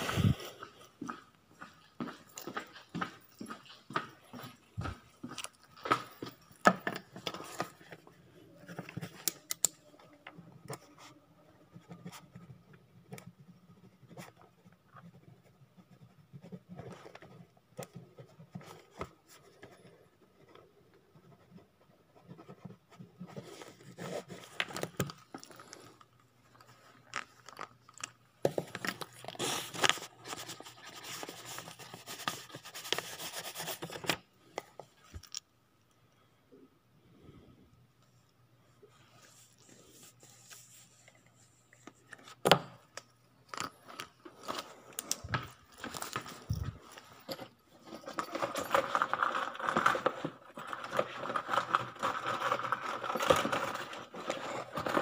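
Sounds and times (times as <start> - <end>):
faint steady hum: 0.0 - 55.0
papers rustling and scraping: 10.7 - 35.4, 43.5 - 55.0.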